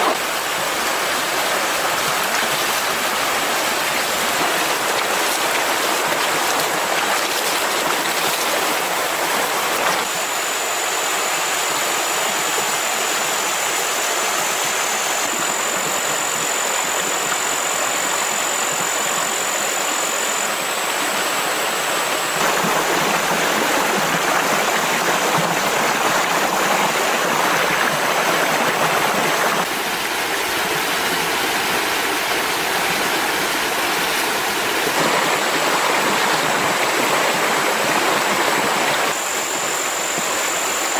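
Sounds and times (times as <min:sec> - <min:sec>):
stream rushing over rocks: 0:00.0 - 0:40.9.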